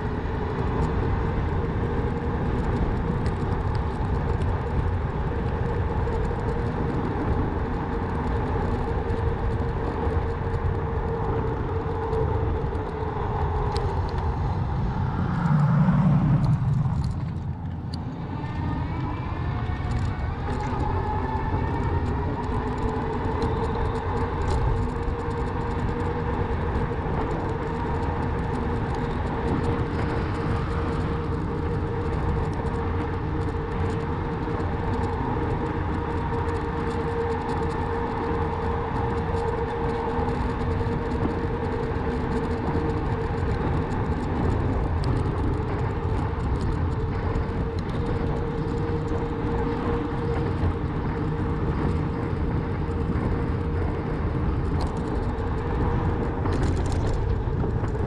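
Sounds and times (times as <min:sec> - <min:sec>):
electric bike motor whine: 0:00.0 - 0:58.0
low rumble: 0:00.0 - 0:58.0
road and wind noise: 0:00.0 - 0:58.0.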